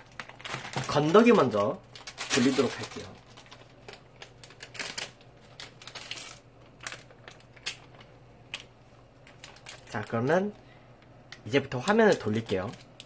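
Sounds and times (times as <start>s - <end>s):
plastic sachets crinkling: 0.0s - 10.5s, 11.1s - 13.0s.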